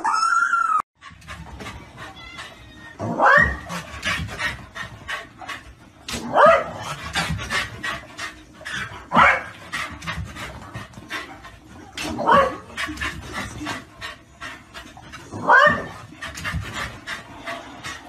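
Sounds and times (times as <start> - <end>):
dog panting rapidly: 1.0 - 18.0
dog barking high-pitched: 3.1 - 3.7, 9.1 - 9.5, 12.2 - 12.6, 15.4 - 15.9.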